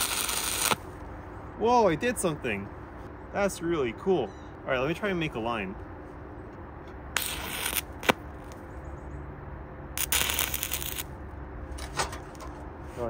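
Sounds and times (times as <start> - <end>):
welding arc crackling: 0.0 - 0.9, 7.2 - 8.6, 10.0 - 11.2.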